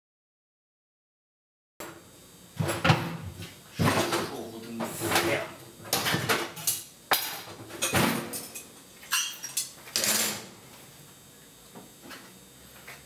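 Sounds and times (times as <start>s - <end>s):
metal cookware clattering: 5.0s - 10.5s.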